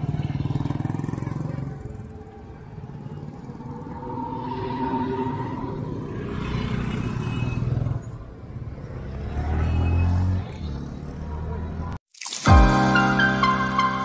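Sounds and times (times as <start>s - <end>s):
scooters and motorcycles passing: 0.0s - 12.0s
background music: 12.4s - 14.0s.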